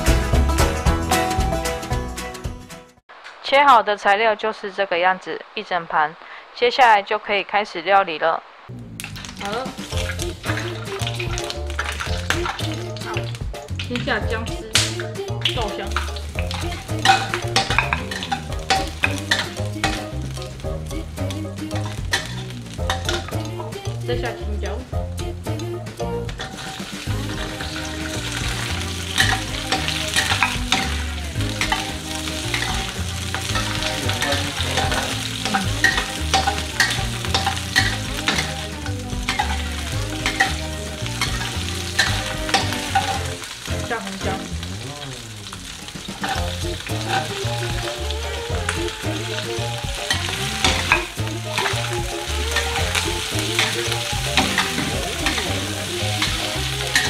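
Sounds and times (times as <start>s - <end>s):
vegetables sizzling in hot oil: 9.0s - 57.0s
metal spatula scraping wok: 15.8s - 20.6s, 21.6s - 23.8s, 26.3s - 44.6s, 46.1s - 48.0s, 48.6s - 57.0s.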